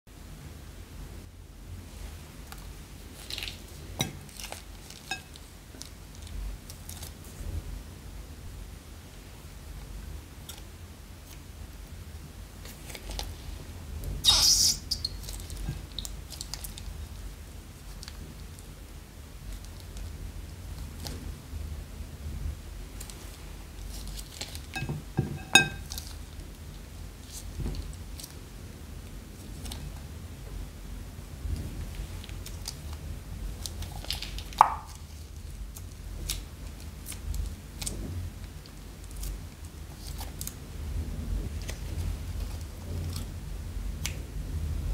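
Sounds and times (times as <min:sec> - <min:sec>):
liquid squeezed out of bag: 0:14.2 - 0:15.2.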